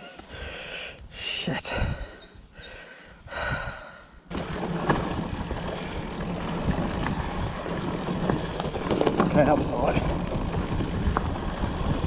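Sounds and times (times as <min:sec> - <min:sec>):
bike rattling over bumps: 0:04.3 - 0:12.0
bike tyres rolling on dirt: 0:04.3 - 0:12.0.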